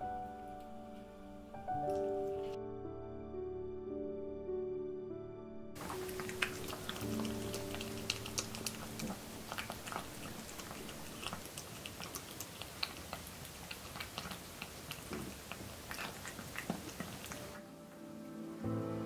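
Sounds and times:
cat chewing wet food: 5.8s - 17.6s
small clicks and smacks: 5.8s - 17.6s.

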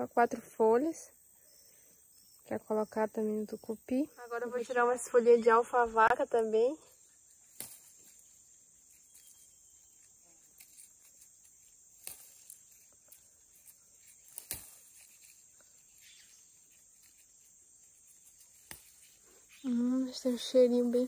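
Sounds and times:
insects droning: 0.0s - 21.0s
plant stems snapping: 7.4s - 8.2s, 8.8s - 16.2s, 18.1s - 19.2s.

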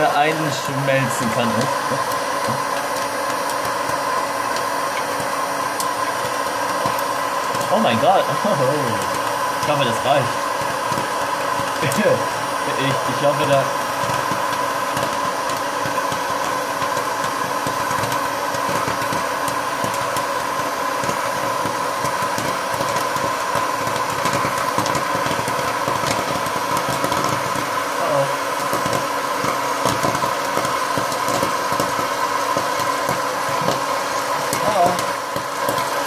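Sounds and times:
popcorn kernels popping: 0.0s - 36.0s
popcorn machine fan humming: 0.0s - 36.0s.

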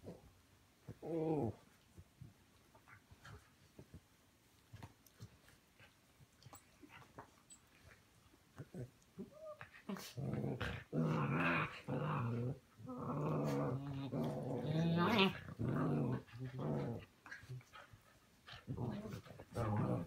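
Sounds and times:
puppies growling: 8.6s - 17.8s, 18.6s - 20.0s.

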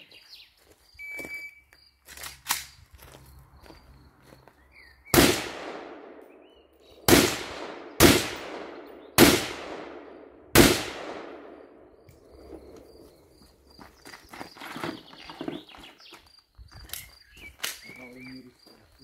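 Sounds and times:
gunshots with echo: 5.1s - 12.0s.

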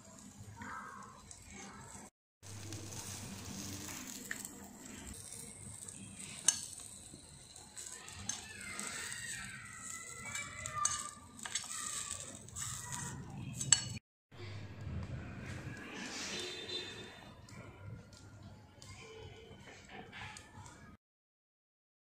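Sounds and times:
hot oil sizzling in a pan: 0.0s - 13.9s
metal spoon scraping a pan: 0.8s - 14.0s, 16.0s - 17.6s.

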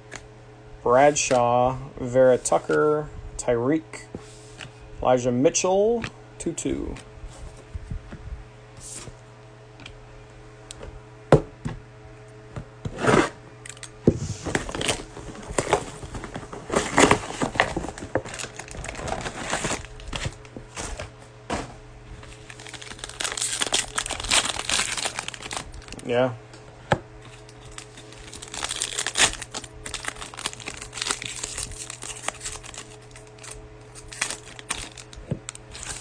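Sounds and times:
foil pack crinkling and tearing: 14.5s - 20.9s, 22.2s - 26.2s, 27.2s - 36.0s.

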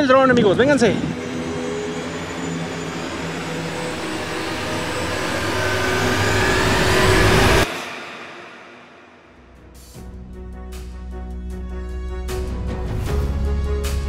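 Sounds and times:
drone motors whirring: 0.0s - 8.3s.

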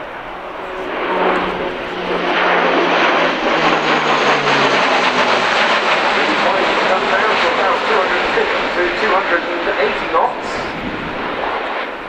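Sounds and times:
turboprop aircraft flying past: 0.0s - 12.0s.

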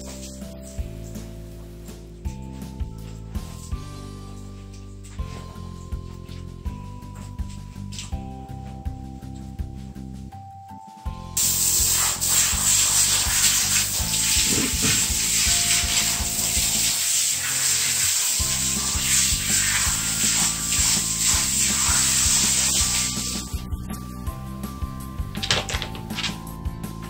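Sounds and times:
shower head spraying water: 0.0s - 2.0s, 7.5s - 8.2s, 11.4s - 26.6s.

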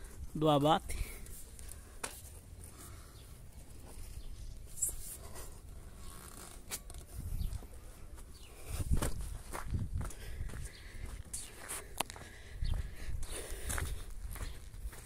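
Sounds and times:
phone rustling and scraping: 3.6s - 7.8s.

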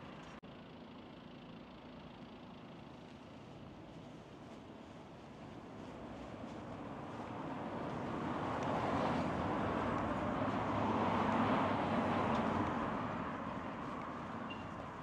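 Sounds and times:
vehicle passing by: 6.1s - 15.0s.

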